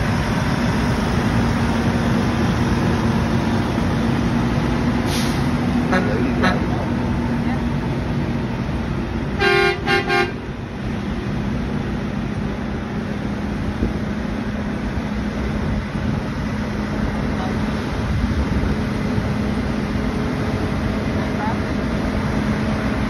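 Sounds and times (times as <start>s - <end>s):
heavy truck engines: 0.0s - 23.0s
truck horn honking: 5.8s - 6.8s, 9.4s - 10.5s.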